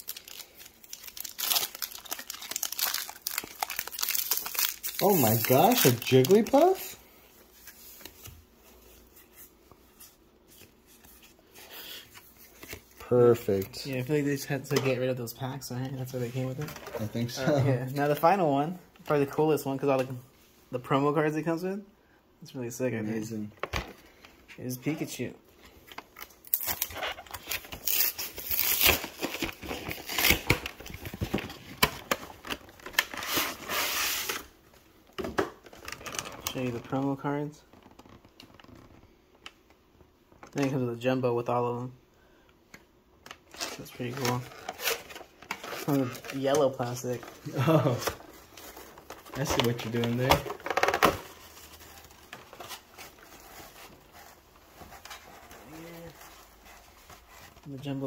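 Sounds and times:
cardboard box crinkling and rustling: 0.2s - 6.8s.

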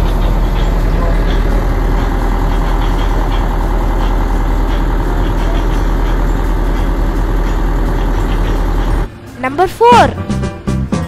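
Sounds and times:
boat engine low rumble: 0.0s - 9.5s.

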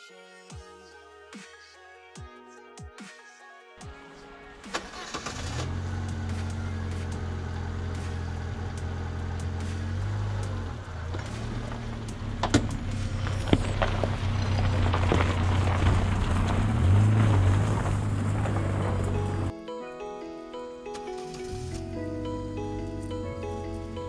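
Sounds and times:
gravel crackling under tyres: 4.9s - 19.5s
car engine at low revs: 5.3s - 19.5s.

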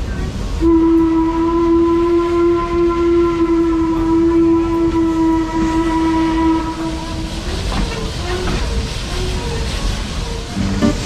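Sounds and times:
train rumbling: 0.0s - 11.0s
steam locomotive whistle: 0.6s - 7.6s.

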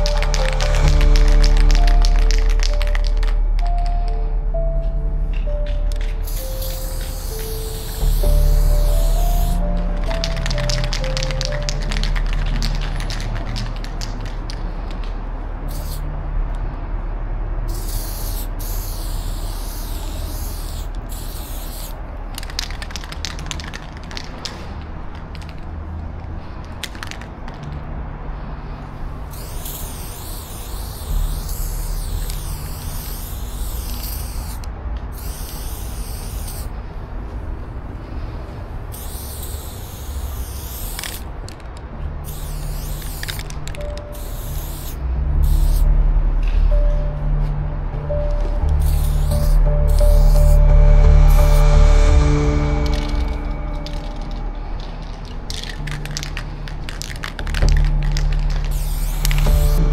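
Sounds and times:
spray paint can hissing: 0.0s - 4.2s, 5.5s - 16.1s, 17.7s - 25.7s, 26.7s - 27.7s, 29.2s - 36.7s, 38.8s - 45.9s, 48.6s - 59.9s
low steady rumble: 0.0s - 18.8s, 44.7s - 59.9s.

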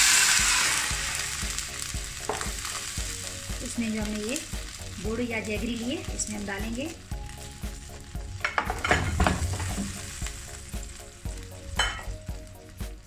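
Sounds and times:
water sizzling in a pan: 0.0s - 13.0s
lumps knocking into a pan: 8.4s - 10.0s.

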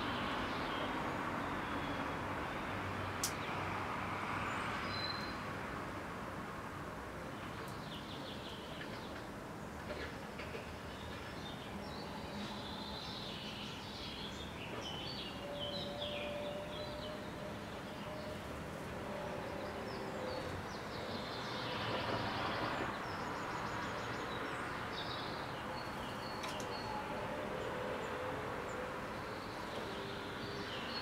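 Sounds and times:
distant city traffic hum: 0.0s - 31.0s
songbirds chirping: 0.0s - 31.0s.

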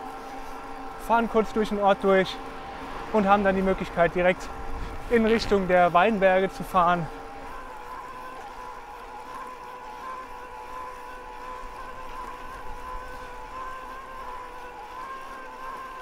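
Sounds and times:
light wind: 0.0s - 8.6s
electric bike motor whining: 0.0s - 16.0s.

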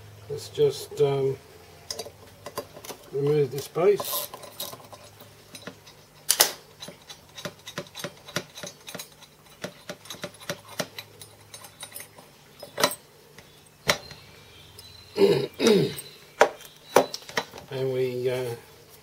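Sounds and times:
metal parts clicking and knocking: 1.9s - 14.2s.

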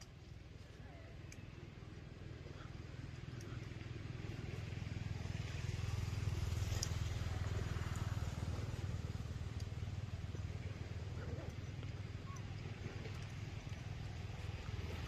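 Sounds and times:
vehicle engine rumbling past: 1.6s - 15.0s.

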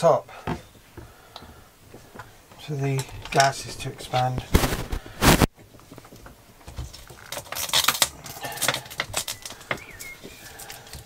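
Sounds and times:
plastic bottle clicks and crinkles: 2.9s - 11.0s.

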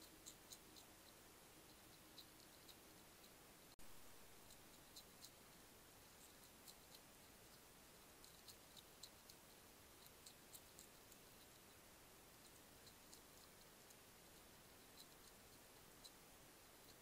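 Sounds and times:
quiet hiss: 0.0s - 17.0s
hedgehog chewing dry biscuits: 4.1s - 17.0s.

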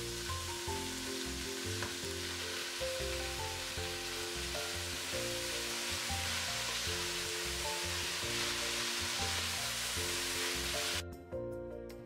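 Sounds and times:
spinach sizzling in oil: 0.0s - 11.0s
background music: 0.0s - 12.0s.

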